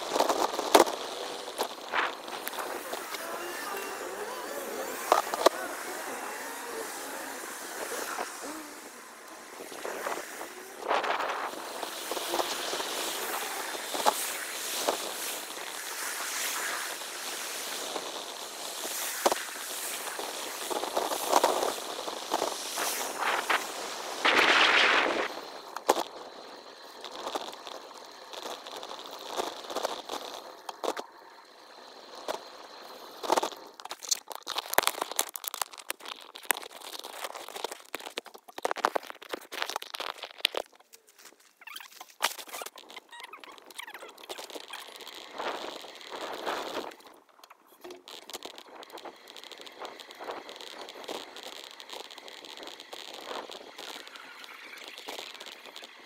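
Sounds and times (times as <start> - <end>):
sped-up rushing noise: 0.0 - 33.6.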